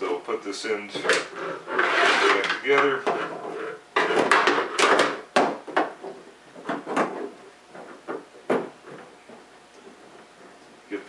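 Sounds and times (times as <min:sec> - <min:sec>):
hard plastic parts knocking: 0:04.0 - 0:10.5.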